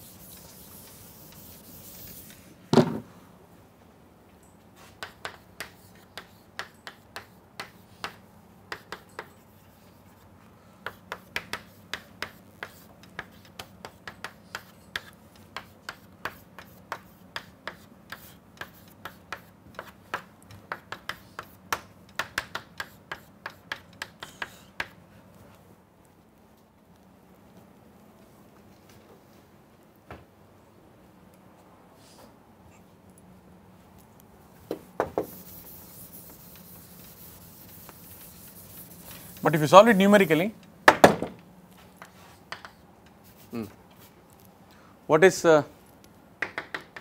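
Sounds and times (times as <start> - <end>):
chalk tapping on a blackboard: 0.0 - 2.4, 4.8 - 25.0, 34.7 - 41.2, 41.9 - 43.7, 46.4 - 47.0.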